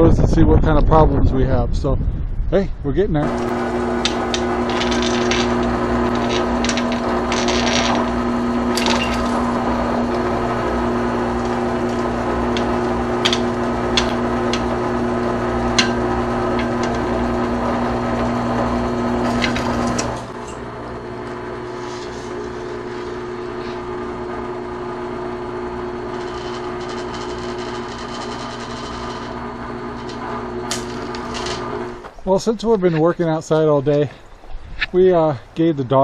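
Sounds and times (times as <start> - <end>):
drill press motor hum: 3.2 - 32.2
drill bit clicks: 3.3 - 21.4, 26.0 - 32.2.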